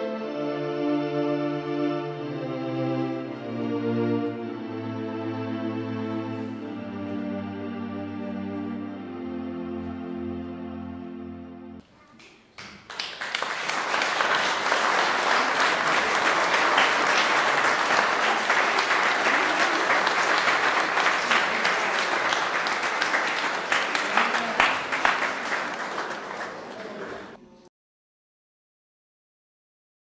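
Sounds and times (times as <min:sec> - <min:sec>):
held music chord: 0:00.0 - 0:11.8
audience applause: 0:12.5 - 0:27.4.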